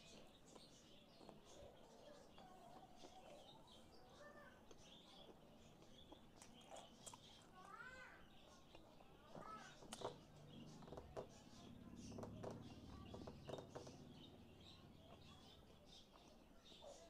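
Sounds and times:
wet chewing and mouth clicks: 0:04.7 - 0:07.6.

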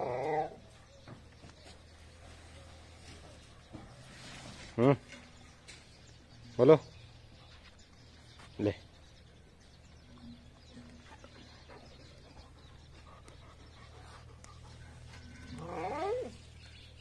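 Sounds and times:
farm animal bleating: 0:15.5 - 0:16.4.

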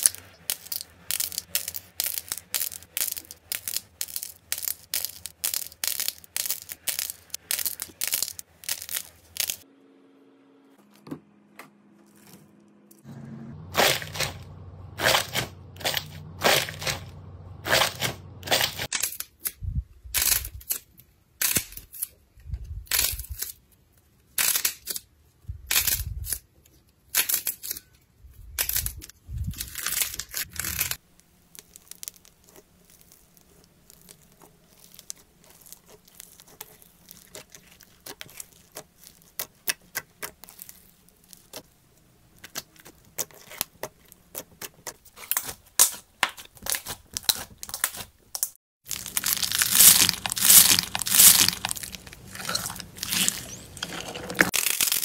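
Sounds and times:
foam bead slime crackling: 0:00.0 - 0:09.6, 0:28.6 - 0:55.0
slime squelching and crackling: 0:00.0 - 0:09.6, 0:28.6 - 0:41.7, 0:42.3 - 0:55.0.

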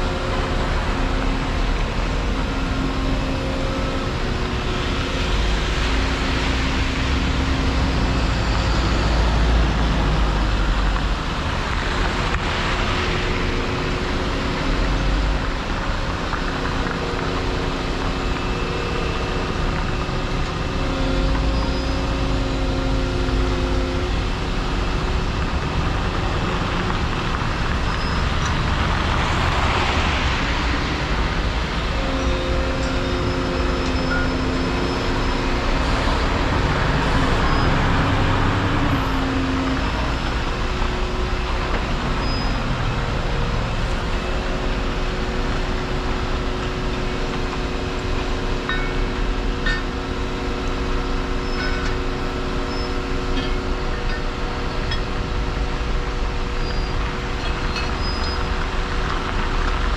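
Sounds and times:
excavator diesel engine rumbling: 0:00.0 - 0:59.9
vehicles swishing past on wet road: 0:04.4 - 0:21.4, 0:24.1 - 0:48.6.

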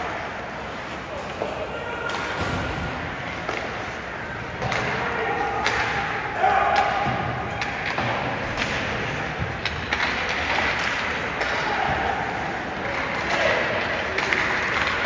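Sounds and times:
arena noise: 0:00.0 - 0:15.0
hockey sticks and puck clacking: 0:00.0 - 0:15.0.

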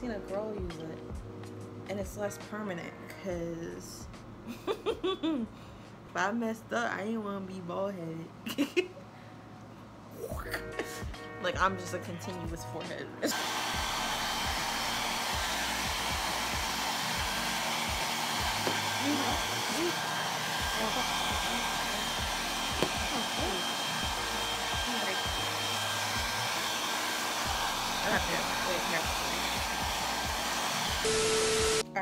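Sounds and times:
hair dryer blowing: 0:13.2 - 0:31.9.

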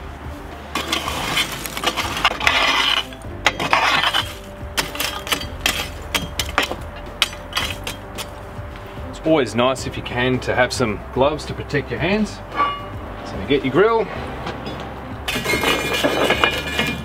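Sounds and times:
metal rake scraping coals on brick: 0:00.7 - 0:08.5, 0:12.5 - 0:13.0, 0:14.6 - 0:17.0
charcoal clinking against metal: 0:00.8 - 0:08.4, 0:12.5 - 0:13.0, 0:14.5 - 0:17.0.

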